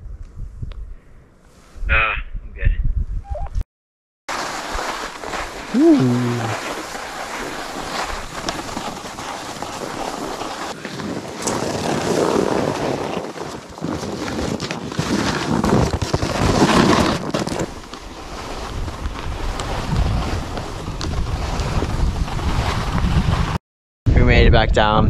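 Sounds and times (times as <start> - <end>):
wind buffeting microphone: 0.0 - 1.1, 1.8 - 3.4
ski scrapes: 4.3 - 23.6
skis sliding over snow: 4.3 - 23.6.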